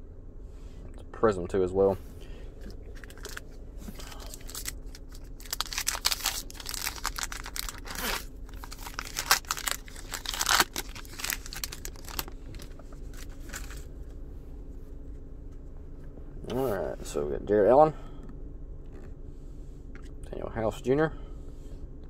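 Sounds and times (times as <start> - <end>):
foil wrapper tearing and crinkling: 2.9 - 13.9.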